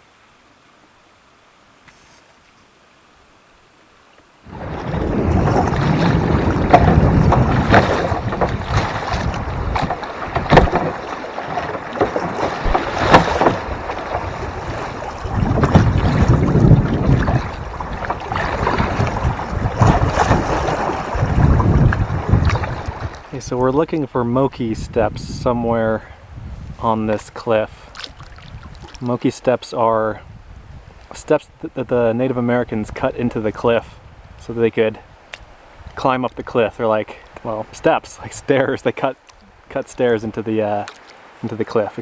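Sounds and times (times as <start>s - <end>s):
water rushing and splashing: 3.7s - 24.0s, 27.8s - 29.8s, 35.0s - 42.0s
sharp splashes and knocks: 4.5s - 23.3s, 27.9s - 29.1s, 40.8s - 41.2s
wind buffeting microphone: 4.5s - 27.1s, 27.8s - 29.0s, 30.2s - 31.0s.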